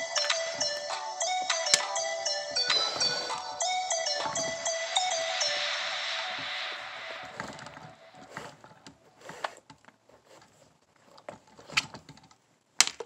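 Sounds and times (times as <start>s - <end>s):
background music: 0.0s - 8.8s.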